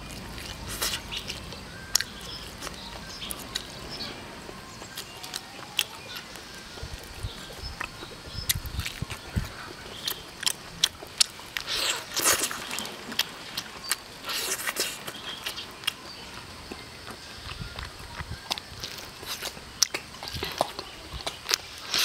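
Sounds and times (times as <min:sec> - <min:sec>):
wet chewing and lip smacks: 0:04.8 - 0:16.0, 0:16.7 - 0:22.0.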